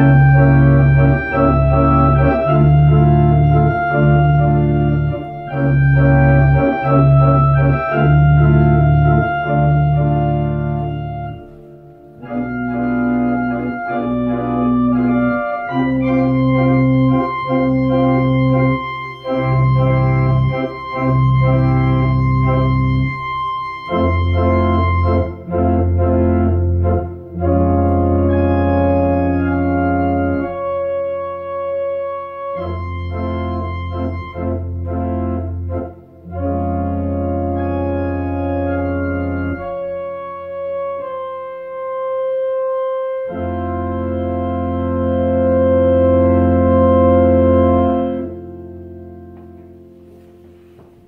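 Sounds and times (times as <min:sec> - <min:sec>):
electronic organ chords: 0:00.0 - 0:51.0.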